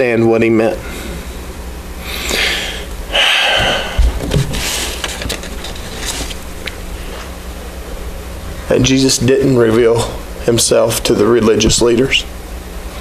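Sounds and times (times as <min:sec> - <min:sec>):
low electrical hum: 0:00.0 - 0:13.0
man breathing and sniffing: 0:02.0 - 0:07.4.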